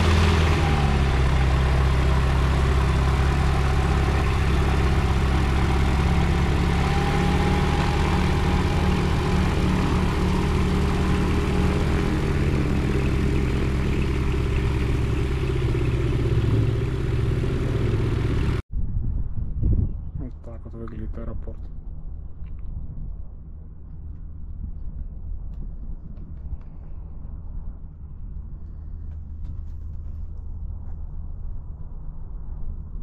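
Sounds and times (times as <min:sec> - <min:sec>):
light aircraft engine idling: 0:00.0 - 0:18.6.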